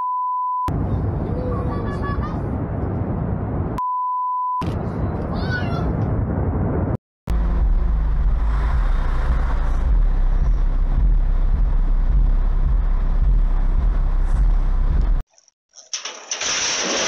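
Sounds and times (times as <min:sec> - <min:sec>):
car engine and road noise: 0:00.7 - 0:03.8, 0:04.6 - 0:15.2
rushing glacier ice fall: 0:16.0 - 0:17.0.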